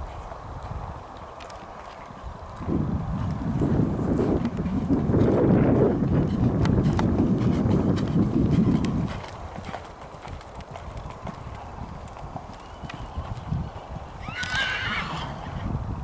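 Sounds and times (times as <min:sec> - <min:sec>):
horse hoofbeats on sand: 0:00.0 - 0:15.5
horse whinnying: 0:14.2 - 0:15.6.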